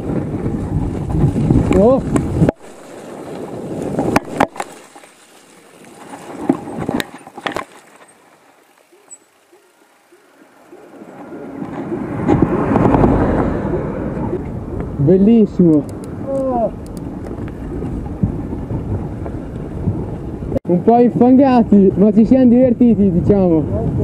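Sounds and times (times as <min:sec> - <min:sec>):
bike tyres rushing on trail: 0:00.0 - 0:24.0
bike rattling clicks: 0:00.4 - 0:13.1, 0:15.6 - 0:18.6.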